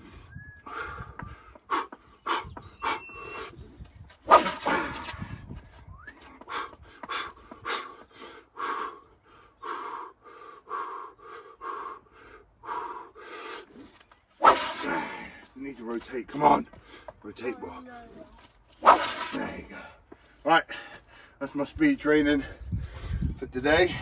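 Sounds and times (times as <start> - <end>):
man breathing hard: 0.0 - 15.6, 16.7 - 17.2, 22.4 - 24.0
stick swishing through air: 4.2 - 5.3, 14.4 - 15.0, 18.8 - 19.6.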